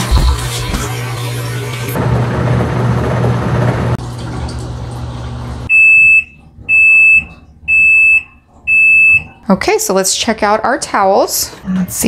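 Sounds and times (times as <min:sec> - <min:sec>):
washing machine humming: 0:00.0 - 0:12.0.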